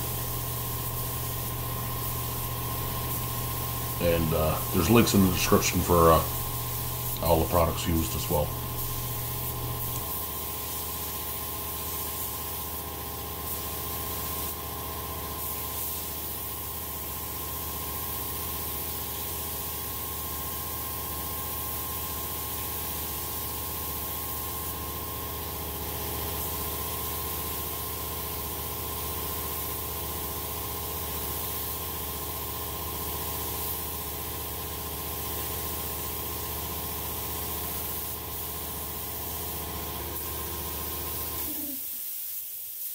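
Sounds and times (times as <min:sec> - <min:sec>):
air compressor humming: 0:00.0 - 0:14.6
spray gun hissing: 0:00.0 - 0:14.6, 0:15.2 - 0:19.8, 0:35.2 - 0:42.9.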